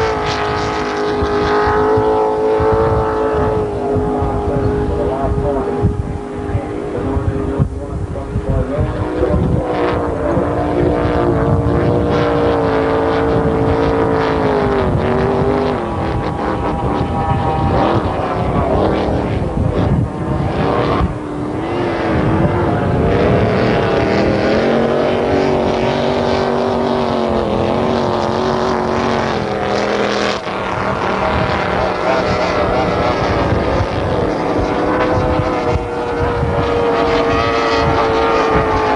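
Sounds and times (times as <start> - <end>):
powerboat engines running hard: 0.0 - 38.9.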